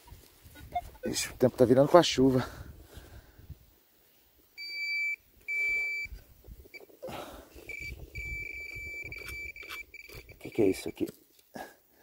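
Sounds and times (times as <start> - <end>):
metal detector beeping: 4.6 - 7.0, 7.6 - 11.1.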